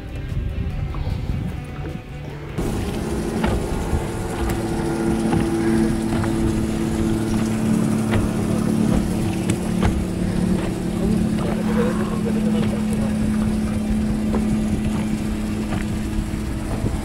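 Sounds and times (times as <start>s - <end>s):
outboard motor running: 0.0s - 17.0s
wind noise: 0.0s - 17.0s
sharp knocks: 2.6s - 11.5s.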